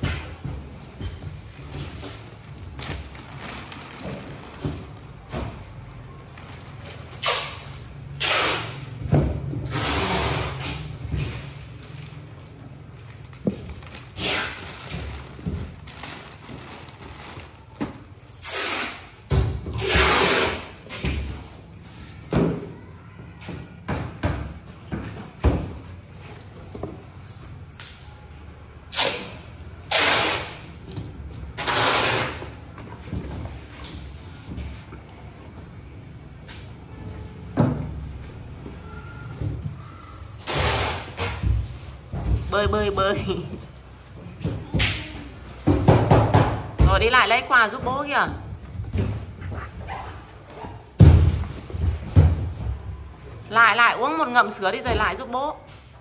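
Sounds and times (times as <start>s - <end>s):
plastic bags rustling: 0.0s - 8.2s, 9.6s - 19.2s.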